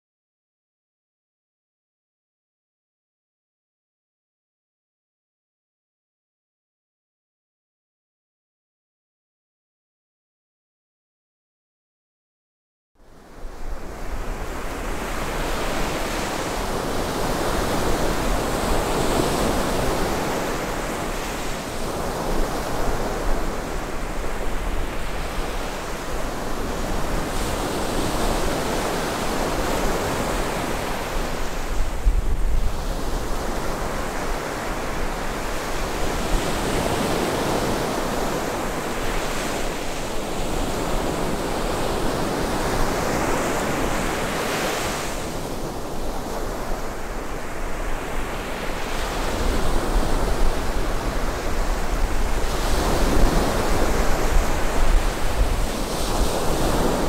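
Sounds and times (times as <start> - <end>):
wind on microphone rumble: 21.9 - 38.2, 49.0 - 57.0
surf breaking on sandy beach: 48.6 - 57.0.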